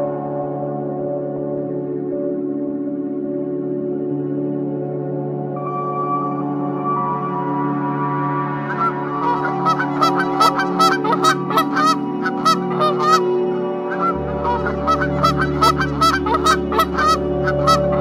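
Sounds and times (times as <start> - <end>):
ambient music drone: 0.0 - 18.0
geese honking: 8.7 - 13.3, 13.9 - 18.0.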